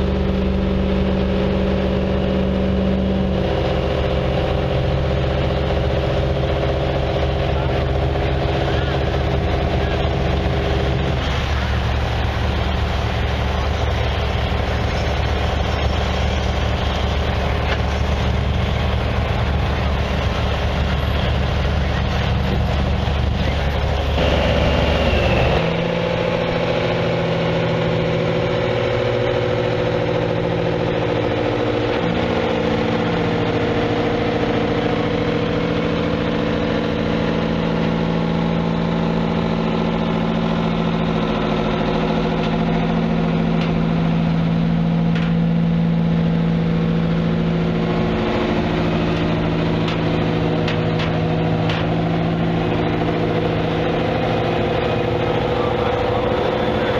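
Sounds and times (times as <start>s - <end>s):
deeper rumble: 0.0s - 56.9s
tractor engine idling: 0.0s - 56.9s.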